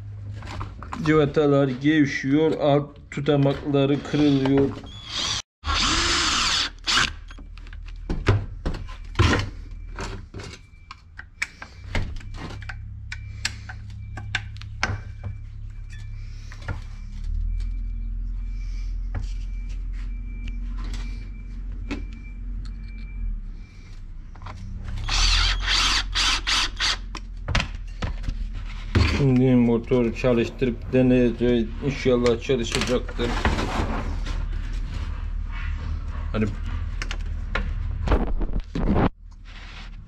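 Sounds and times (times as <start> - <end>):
power tool burst: 25.0 - 27.0.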